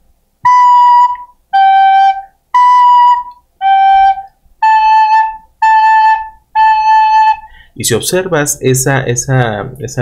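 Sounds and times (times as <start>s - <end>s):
recorder playing single notes: 0.4s - 7.7s.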